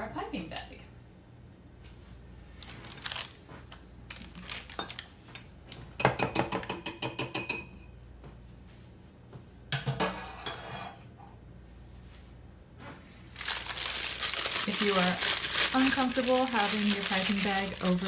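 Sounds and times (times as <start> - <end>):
utensils clinking against dishes: 6.0 - 7.8.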